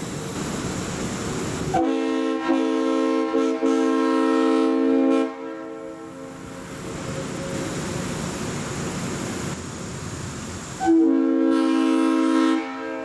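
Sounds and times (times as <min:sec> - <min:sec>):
train horn chord: 0:01.8 - 0:06.4, 0:10.8 - 0:13.0.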